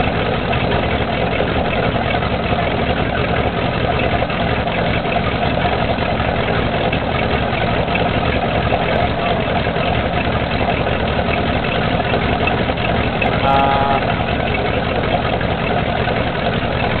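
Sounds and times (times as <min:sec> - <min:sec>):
boat engine idling: 0:00.0 - 0:17.0
exhaust blowing out: 0:00.0 - 0:17.0.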